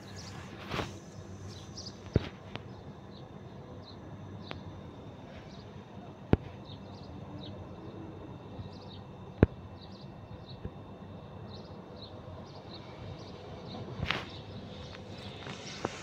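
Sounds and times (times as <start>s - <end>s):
small birds chirping: 0.0s - 4.6s, 8.6s - 16.0s.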